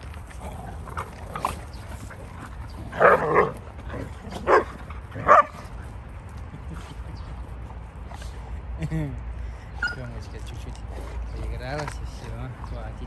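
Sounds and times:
dogs barking: 0:02.7 - 0:05.7.

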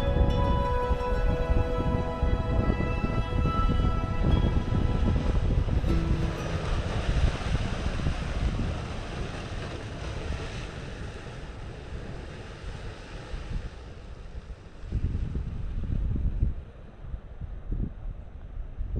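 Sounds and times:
wind buffeting microphone: 0:00.0 - 0:18.9
surf breaking over rocks: 0:02.5 - 0:15.5.

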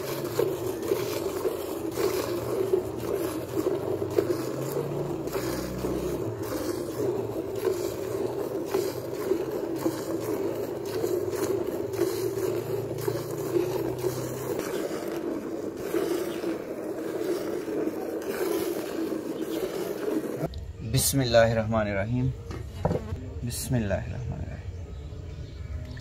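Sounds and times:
milk squirting into bucket: 0:00.0 - 0:20.6.

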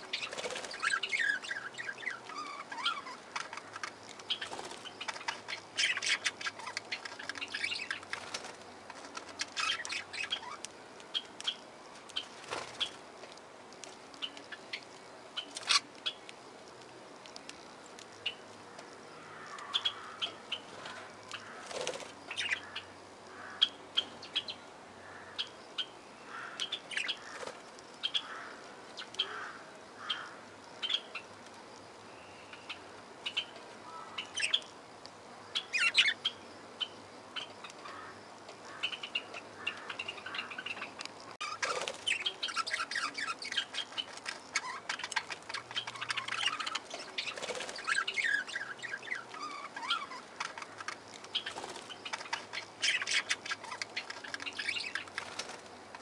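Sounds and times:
wings fluttering: 0:00.0 - 0:22.8, 0:26.4 - 0:31.6, 0:37.6 - 0:56.0
budgerigars chirping and warbling: 0:00.1 - 0:08.5, 0:09.2 - 0:11.6, 0:21.3 - 0:24.6, 0:35.6 - 0:38.0, 0:38.7 - 0:55.6.

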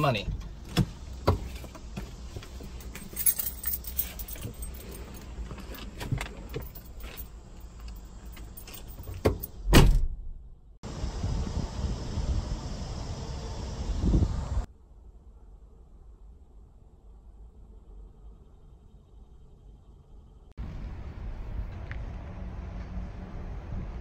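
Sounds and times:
keys jangling: 0:02.6 - 0:09.6
car door shutting: 0:08.4 - 0:10.3
open air hiss: 0:10.8 - 0:14.7.

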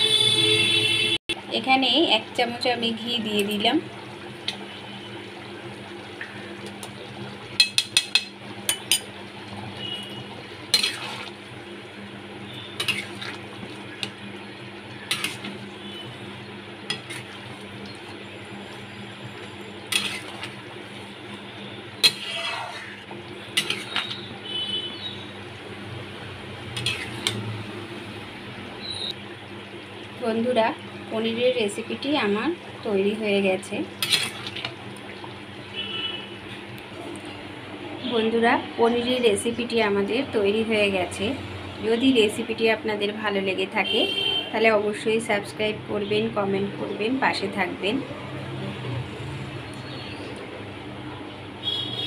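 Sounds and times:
metal spoon scraping metal pan: 0:10.7 - 0:11.3, 0:12.8 - 0:13.4, 0:15.1 - 0:15.6, 0:16.9 - 0:17.4, 0:19.9 - 0:20.6, 0:22.0 - 0:23.0, 0:23.6 - 0:24.3, 0:26.8 - 0:27.5, 0:34.0 - 0:34.5.

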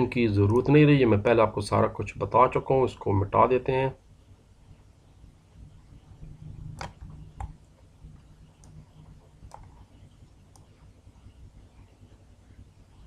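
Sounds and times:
low steady hum: 0:00.0 - 0:13.0
faint computer mouse clicks: 0:08.6 - 0:09.8, 0:10.5 - 0:10.8.

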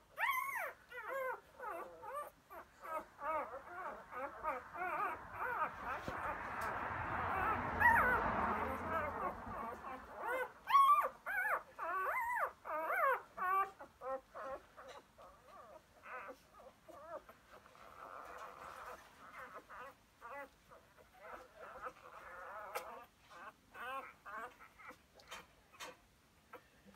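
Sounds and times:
puppies squeaking and whimpering: 0:00.0 - 0:26.8.

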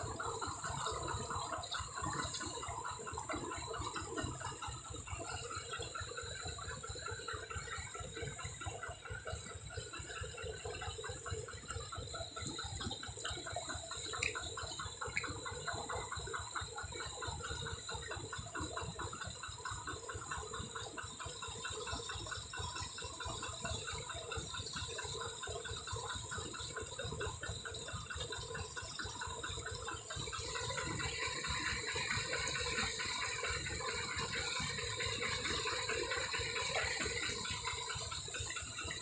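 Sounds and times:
ratchet-like clicking: 0:00.0 - 0:39.0.

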